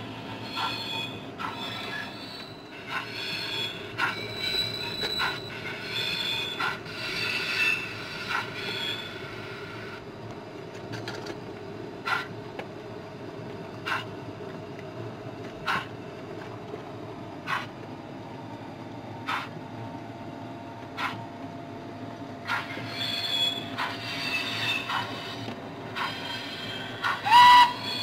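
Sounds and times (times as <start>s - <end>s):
steady low hum: 0.0s - 28.0s
model train wheels squealing: 0.1s - 9.8s, 22.5s - 28.0s.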